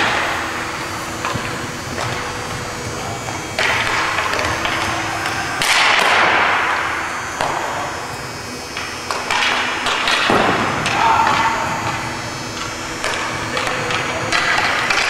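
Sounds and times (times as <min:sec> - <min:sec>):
skates scraping on ice: 0:00.0 - 0:08.3.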